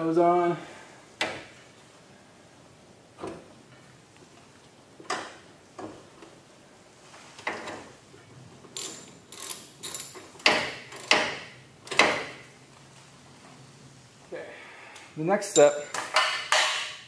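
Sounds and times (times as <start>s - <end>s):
metal hardware knocking: 15.9s - 17.0s.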